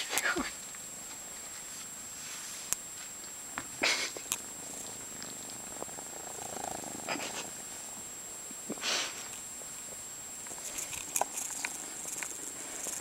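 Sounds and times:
kitten purring: 3.8s - 13.0s.

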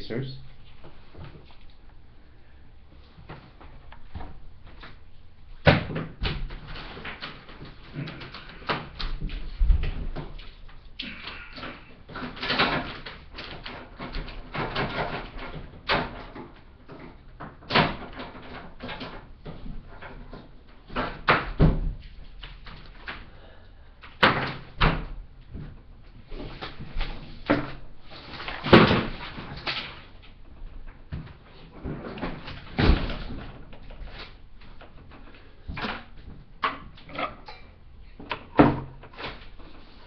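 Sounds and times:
irregular knocks and thuds: 5.6s - 10.7s, 13.8s - 22.8s, 24.2s - 27.9s.

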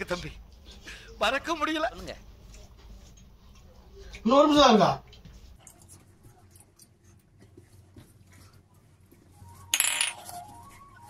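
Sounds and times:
chewing: 2.4s - 4.2s.

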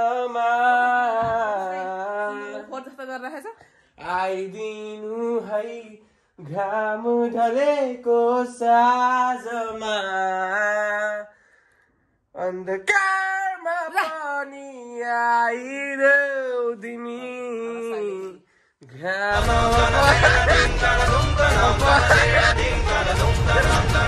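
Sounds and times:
person singing unaccompanied: 19.3s - 24.0s.

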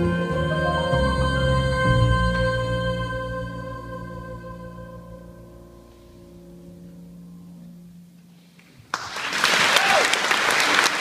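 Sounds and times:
choir and double bass chord: 0.0s - 7.5s
audience applauding: 8.9s - 11.0s.

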